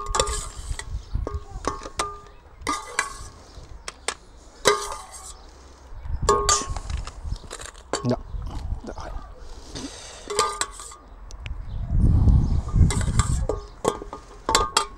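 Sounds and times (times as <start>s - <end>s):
metal spoon clinking against pot: 10.3s - 11.0s.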